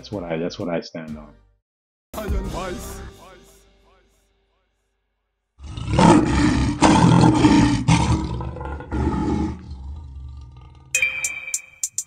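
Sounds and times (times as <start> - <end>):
lion roaring: 5.6 - 11.0.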